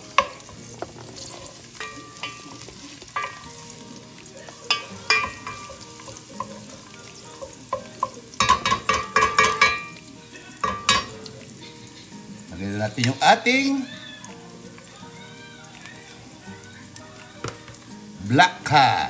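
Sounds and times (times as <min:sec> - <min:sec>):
utensil clinking and scraping pan: 0:00.0 - 0:12.1
garlic and ginger sizzling in oil: 0:00.0 - 0:19.0.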